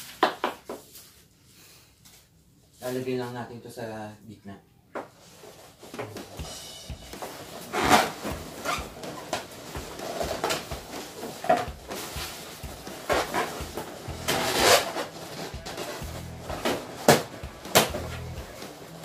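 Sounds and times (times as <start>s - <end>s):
rubber balloons squeaking: 6.0s - 19.0s.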